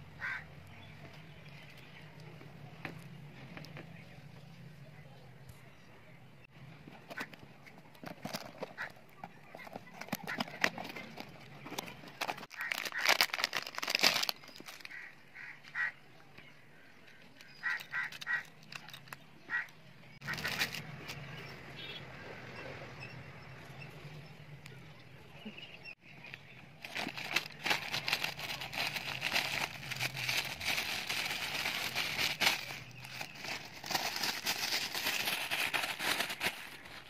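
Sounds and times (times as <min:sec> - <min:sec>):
box and packaging rustling: 0:06.8 - 0:15.0, 0:20.2 - 0:21.2, 0:26.8 - 0:37.0.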